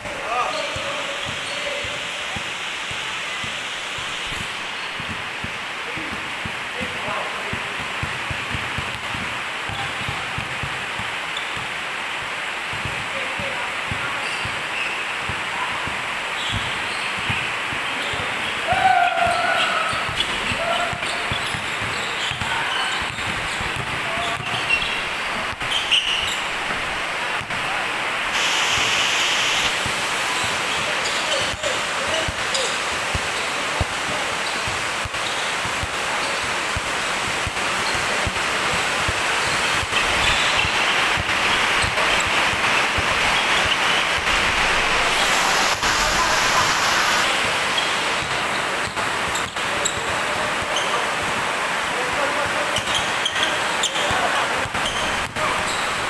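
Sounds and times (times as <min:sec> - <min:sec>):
steady hiss: 0:00.0 - 0:19.0, 0:19.7 - 0:56.0
basketball dribbling: 0:00.5 - 0:11.8, 0:12.7 - 0:18.6, 0:19.2 - 0:27.6, 0:29.9 - 0:44.0, 0:48.2 - 0:51.4, 0:52.8 - 0:56.0
basketball dribbling on concrete: 0:05.0 - 0:06.9, 0:07.5 - 0:11.7, 0:12.7 - 0:14.6, 0:15.3 - 0:18.5, 0:20.1 - 0:26.8
heavy rain on roof: 0:26.5 - 0:56.0.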